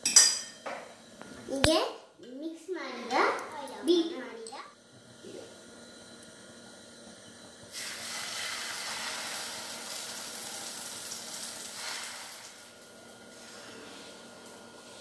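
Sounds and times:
egg batter sizzling in hot oil: 7.6s - 14.8s.

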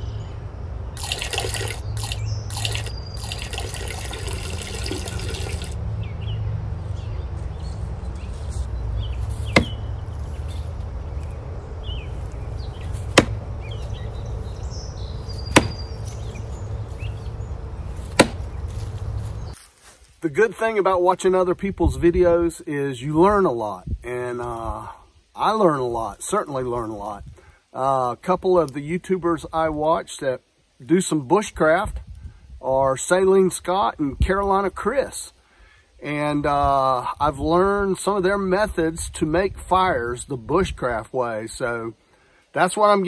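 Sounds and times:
steady low rumble: 5.8s - 19.6s
rustling: 6.8s - 20.3s
knocks on a tree trunk: 9.5s - 9.8s, 12.8s - 13.5s, 15.4s - 16.2s, 18.0s - 19.0s.

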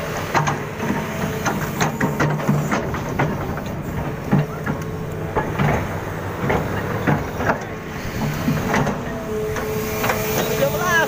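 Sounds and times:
engine running with low hum: 0.0s - 11.0s
sharp knocks and clicks: 0.2s - 9.0s.

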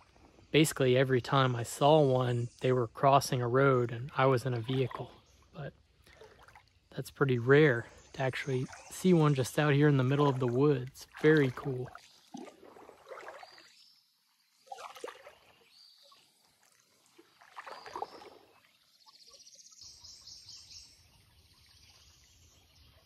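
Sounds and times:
creek water trickling: 0.0s - 23.0s.

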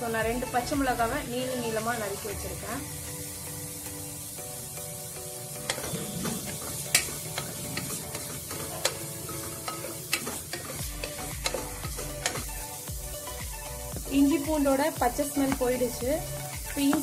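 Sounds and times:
onions sizzling in a pot: 0.0s - 17.0s
ladle stirring and scraping: 5.6s - 12.7s.

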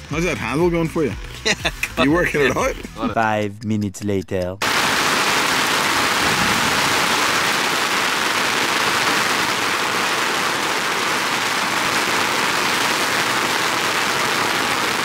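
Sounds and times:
heavy rain falling: 4.6s - 15.0s.

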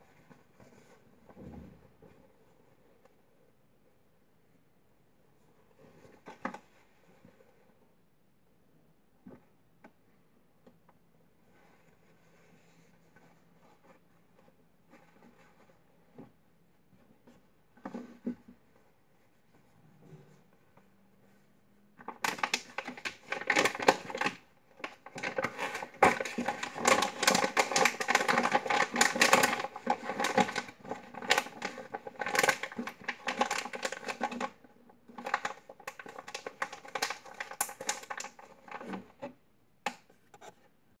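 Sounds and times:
plastic bag crinkling: 22.2s - 39.0s.

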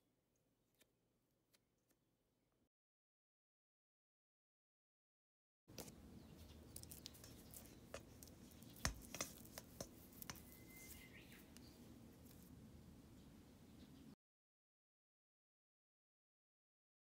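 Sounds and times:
hand rubbing dough: 5.7s - 12.7s
light taps against metal bowl: 7.9s - 11.7s.

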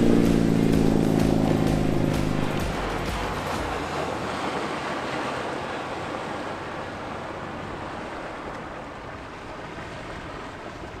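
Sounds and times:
wind rushing: 0.0s - 3.5s
choppy water: 0.0s - 11.0s
distant boat engine: 0.0s - 11.0s.

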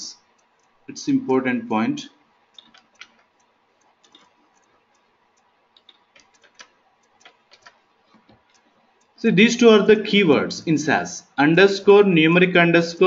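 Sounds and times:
computer mouse clicks: 0.2s - 1.0s, 2.4s - 9.2s
keyboard clicks: 2.5s - 9.2s.

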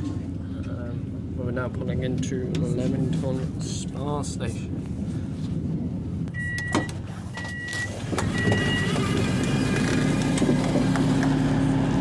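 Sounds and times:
steady low hum: 0.0s - 9.2s
train door alarm beeping: 6.4s - 9.0s
power door opening: 6.4s - 10.8s.

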